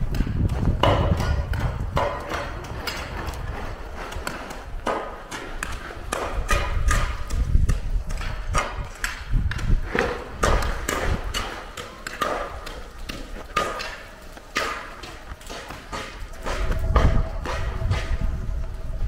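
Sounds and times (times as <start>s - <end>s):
snow shovels scraping and knocking: 0.0s - 19.0s
low rumble: 16.2s - 19.0s.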